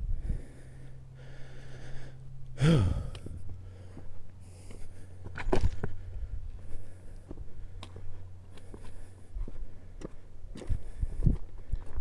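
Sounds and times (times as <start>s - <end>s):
person breathing hard: 0.0s - 12.0s
loud voiced exhale: 2.6s - 3.2s.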